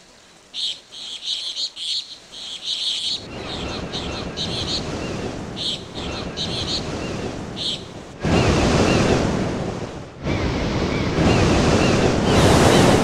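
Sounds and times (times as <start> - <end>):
surf breaking on beach: 3.2 - 13.0.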